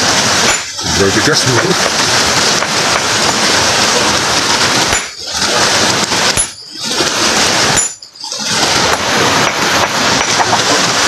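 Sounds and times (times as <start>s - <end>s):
rushing stream water: 0.0s - 11.0s
hammer clinking on stone: 7.8s - 8.3s.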